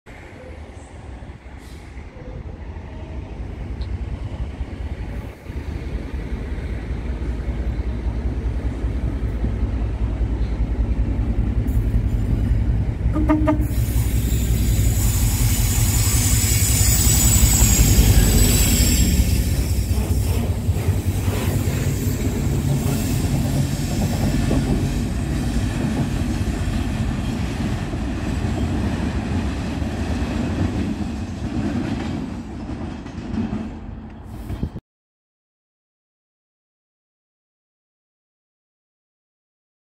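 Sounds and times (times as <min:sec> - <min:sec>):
diesel locomotive engine rumble: 0:00.1 - 0:34.8
high wheel squeal: 0:13.6 - 0:24.2.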